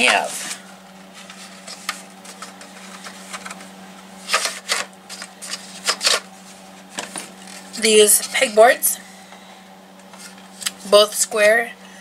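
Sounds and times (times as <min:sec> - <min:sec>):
steady low hum: 0:00.0 - 0:12.0
plastic items clicking and clattering: 0:04.3 - 0:06.2.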